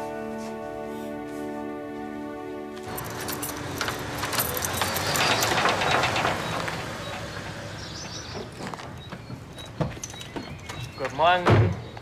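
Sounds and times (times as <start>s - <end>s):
keys jangling in a lock: 2.8s - 6.2s
car passing: 2.8s - 9.6s.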